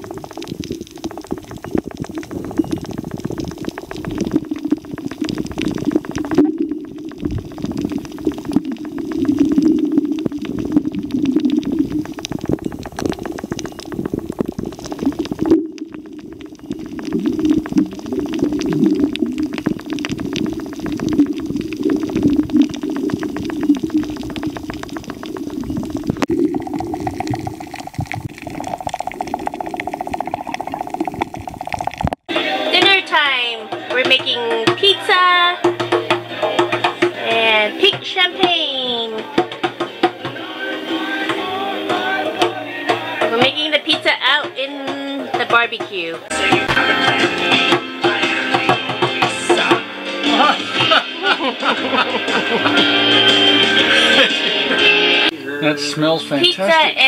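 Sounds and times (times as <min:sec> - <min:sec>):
muffled water gurgling: 0:00.0 - 0:33.4.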